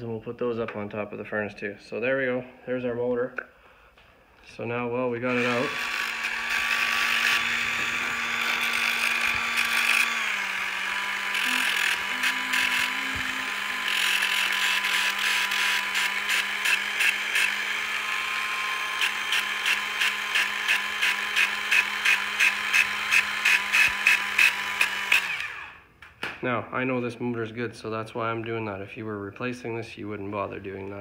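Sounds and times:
angle grinder running: 5.2s - 25.8s.

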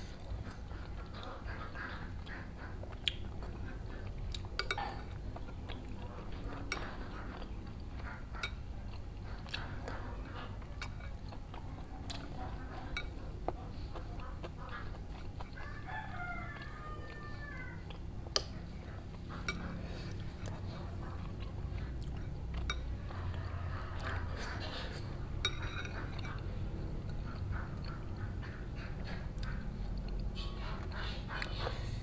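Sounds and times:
chewing: 0.0s - 32.0s
cutlery clicking on ceramic bowls: 4.4s - 5.5s, 12.8s - 13.2s, 25.4s - 26.5s
rooster crowing: 15.6s - 17.9s.

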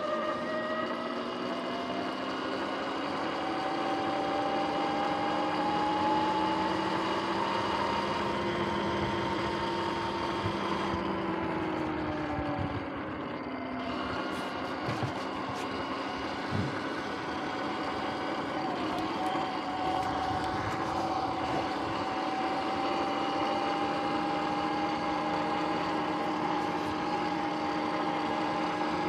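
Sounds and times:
electric motor whining: 0.0s - 29.0s.

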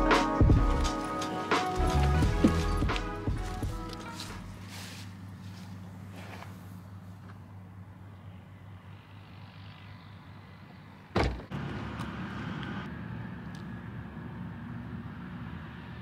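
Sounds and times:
loud thump: 11.2s - 11.5s.

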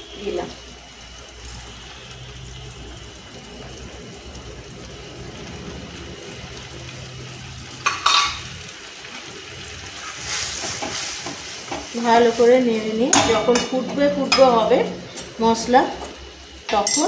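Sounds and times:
faint sizzle in pan: 0.0s - 17.0s
metal bowl clanking on pan: 7.8s - 8.5s, 13.0s - 15.3s, 16.7s - 17.0s.

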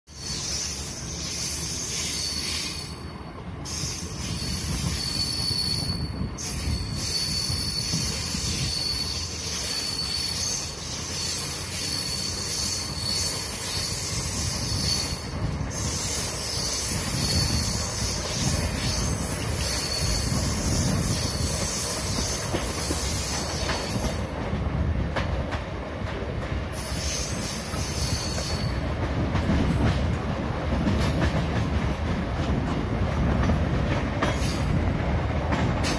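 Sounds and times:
high-pitched wheel squeal: 0.1s - 3.1s, 3.7s - 24.2s, 26.8s - 28.8s
train wheels rumbling on rail: 0.1s - 35.9s.

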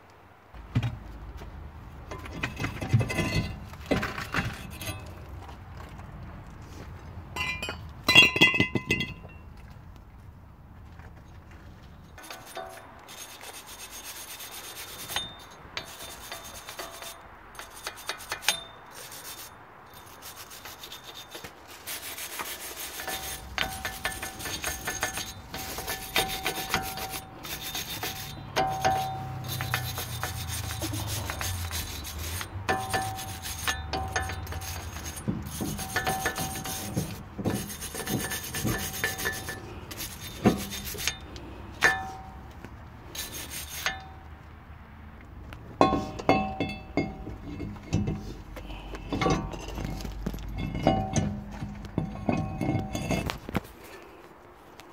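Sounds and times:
tool scraping rusty metal: 2.0s - 5.5s, 7.3s - 9.4s, 11.9s - 44.4s, 45.7s - 54.2s
metal clinks: 7.4s - 9.5s.

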